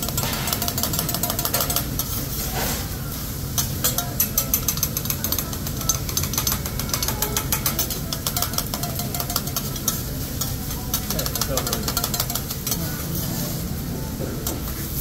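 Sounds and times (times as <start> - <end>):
metal spatulas scraping griddle: 0.1 - 8.6.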